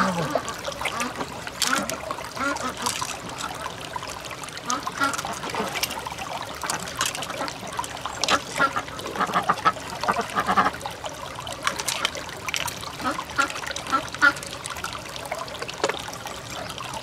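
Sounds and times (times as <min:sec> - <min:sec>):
water trickling: 0:00.0 - 0:17.0
wet squelching and clicking: 0:00.2 - 0:03.6, 0:04.8 - 0:08.8, 0:11.6 - 0:14.4.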